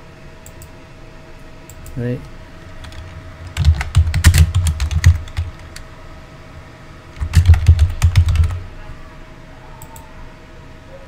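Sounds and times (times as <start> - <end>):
typing on computer keyboard: 2.8 - 5.8, 7.2 - 8.6.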